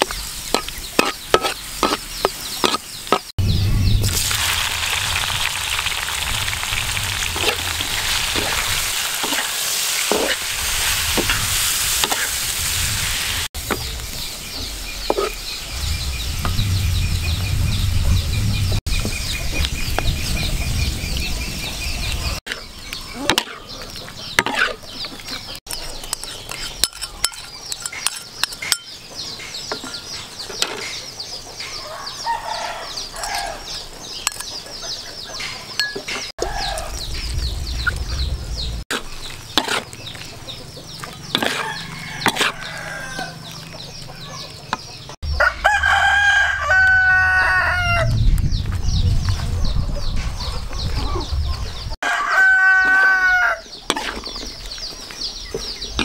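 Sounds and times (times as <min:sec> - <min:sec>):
metal spatula scraping wok: 0:00.0 - 0:03.3, 0:07.3 - 0:13.8, 0:14.7 - 0:16.6, 0:23.3 - 0:25.0, 0:25.6 - 0:28.9, 0:38.6 - 0:40.3, 0:41.0 - 0:43.0, 0:53.9 - 0:54.5
food sizzling in hot oil: 0:03.8 - 0:17.7
chickens clucking: 0:18.1 - 0:45.8, 0:49.3 - 0:56.0.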